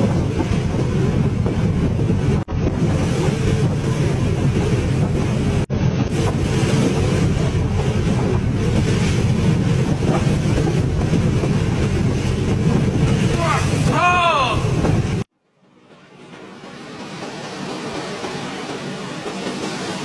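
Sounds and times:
wind: 0.0 - 20.0
water rushing over boat deck: 5.5 - 15.3.

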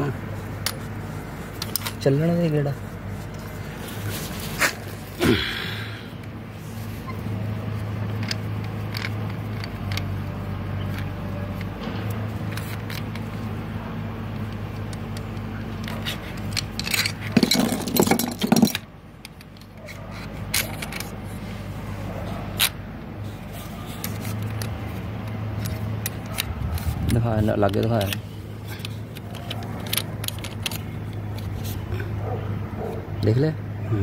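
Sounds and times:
metal clinking and scraping: 0.0 - 5.2, 14.3 - 31.9
small metallic clicks: 1.5 - 2.0, 8.1 - 13.6, 23.9 - 31.7.

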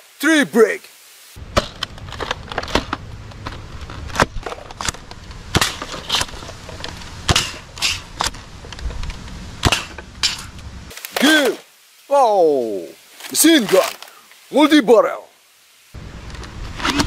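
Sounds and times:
low outdoor rumble: 1.4 - 10.9, 16.0 - 16.8.

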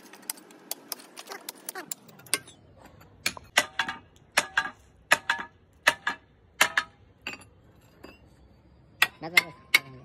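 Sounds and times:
hammer striking steel chisel: 3.2 - 7.5.

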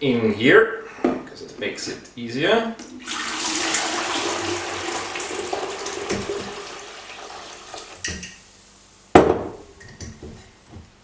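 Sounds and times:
slurry pouring and splashing: 3.0 - 8.0.

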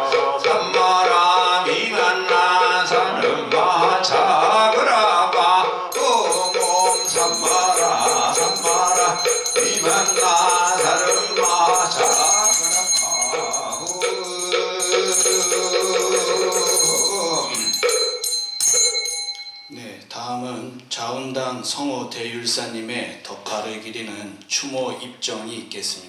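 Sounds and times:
person chanting: 0.0 - 17.8
high steady ringing tone: 5.9 - 20.0
small bell jingling: 6.0 - 19.8.

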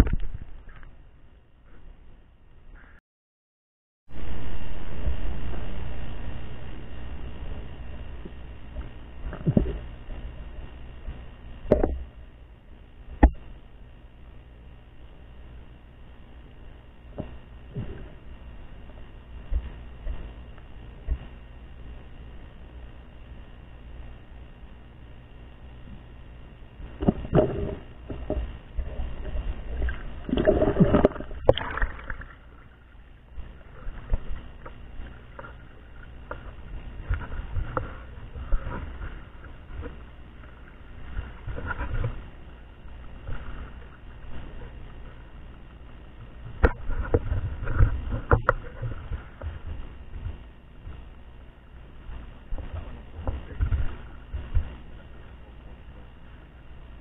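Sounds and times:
dull knocks underwater: 0.0 - 0.9, 8.2 - 9.9, 11.1 - 12.2, 26.9 - 32.4, 46.5 - 51.1
muffled underwater water rumble: 0.0 - 3.0, 4.1 - 57.0
water splashing while wading: 27.0 - 42.3.

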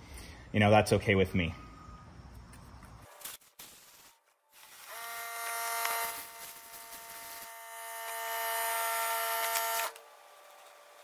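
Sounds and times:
air blow gun hissing: 5.8 - 7.6.

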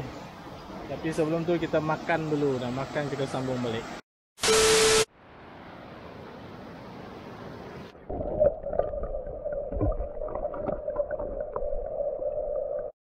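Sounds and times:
underwater rumble: 8.1 - 13.0.

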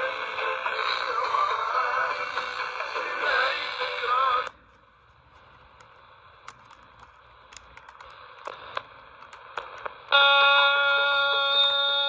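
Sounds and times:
radio playing singing: 0.0 - 4.7, 8.0 - 12.0
radio static hiss and crackles: 0.0 - 12.0.

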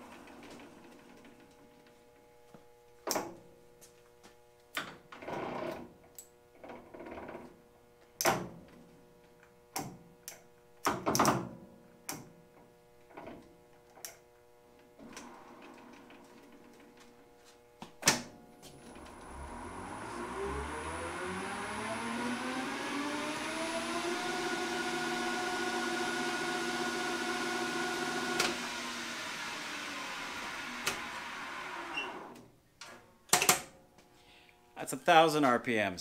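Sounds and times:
lathe spindle rising whine: 18.7 - 32.4.

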